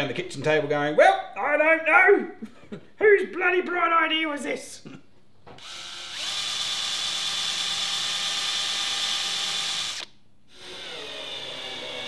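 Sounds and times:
cordless drill drilling: 0:05.6 - 0:12.0.

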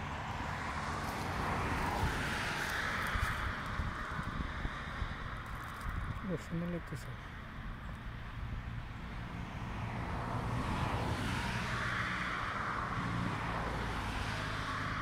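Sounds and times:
passing vehicle engine drone: 0:08.6 - 0:15.0.

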